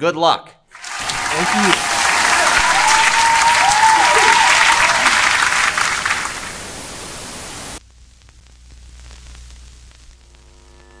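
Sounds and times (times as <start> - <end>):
television static hiss: 1.0 - 11.0
faint crackles: 2.6 - 11.0
low electrical hum: 6.6 - 11.0.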